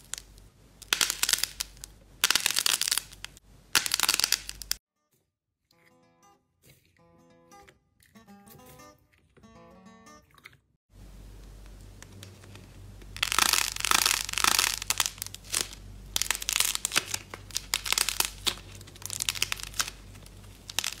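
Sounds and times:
clay and slime crackling: 0.0 - 4.8, 11.3 - 21.0.

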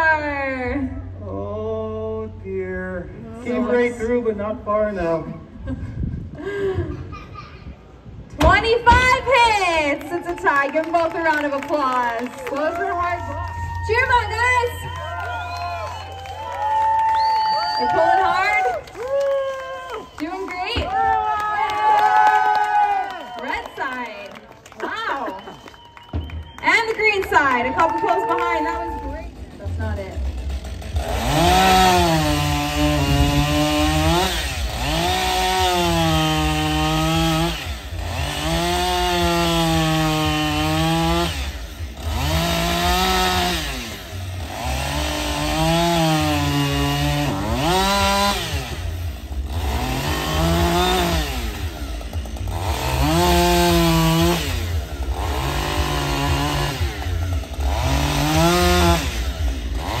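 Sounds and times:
chainsaw revving: 27.2 - 60.0.

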